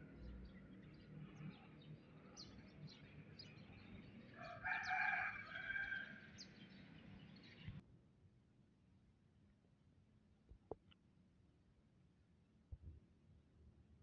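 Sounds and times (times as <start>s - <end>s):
rooster crowing: 4.4s - 6.3s.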